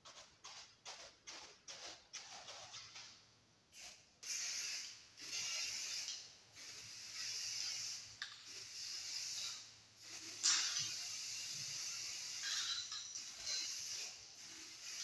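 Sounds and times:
spray can hissing: 3.8 - 12.6, 13.2 - 15.0
spray can rattling: 3.8 - 15.0.

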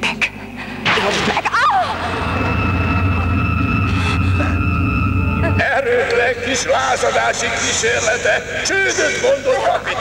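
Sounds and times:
high whine: 1.8 - 9.0
sci-fi engine drone: 1.9 - 8.7.

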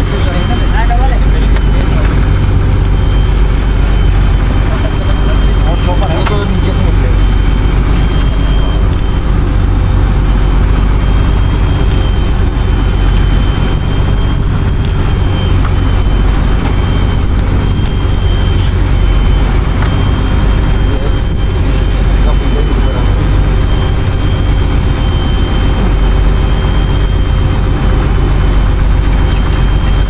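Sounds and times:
engine droning with high whine: 0.0 - 30.0.

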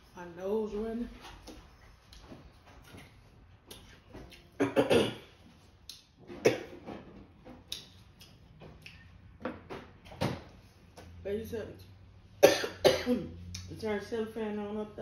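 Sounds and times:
lip smacks: 3.7 - 4.4, 7.6 - 9.2.

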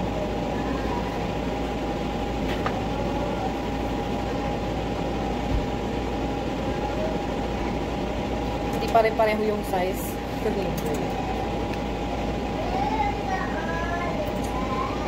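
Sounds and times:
mid-pitched whine: 0.0 - 15.0
steady mechanical hum: 0.0 - 15.0.

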